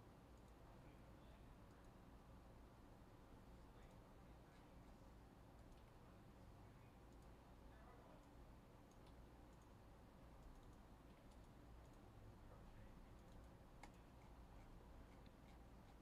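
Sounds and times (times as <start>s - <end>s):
low room hum: 0.0s - 16.0s
faint clicks: 7.1s - 7.3s, 8.2s - 9.8s, 10.4s - 12.1s.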